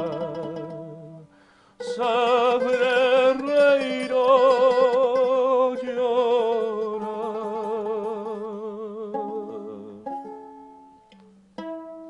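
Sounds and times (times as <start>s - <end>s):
guitar notes plucked: 0.0s - 5.8s, 6.5s - 12.0s
man singing with vibrato: 0.0s - 10.3s.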